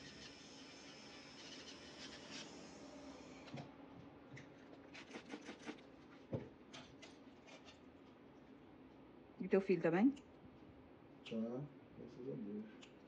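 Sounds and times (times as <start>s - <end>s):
electric nail drill whine: 0.0s - 3.6s.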